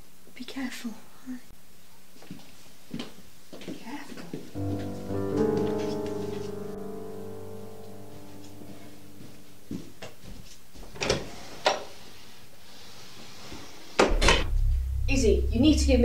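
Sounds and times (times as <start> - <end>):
held musical chord: 4.6 - 10.0, 14.2 - 16.0.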